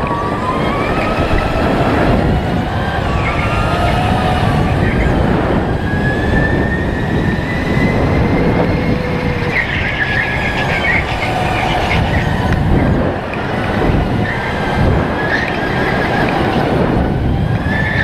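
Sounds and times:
electric motor whine: 0:00.0 - 0:18.0
tyres rumbling on track: 0:00.0 - 0:18.0
tyres squealing: 0:06.7 - 0:16.8.

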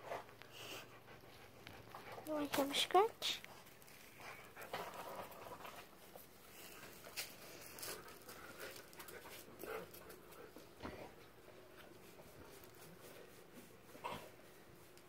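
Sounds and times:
dog panting: 0:00.0 - 0:06.8, 0:07.6 - 0:14.4
scuffs and rustles: 0:03.5 - 0:15.0.

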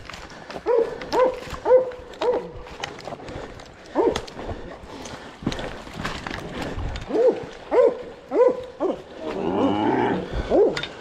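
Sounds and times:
dogs barking: 0:00.6 - 0:02.8, 0:03.9 - 0:04.3, 0:07.1 - 0:09.1, 0:10.4 - 0:11.0.

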